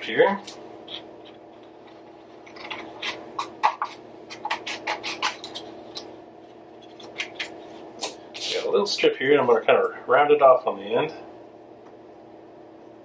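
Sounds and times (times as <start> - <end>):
scissors snipping paper: 2.6 - 6.1.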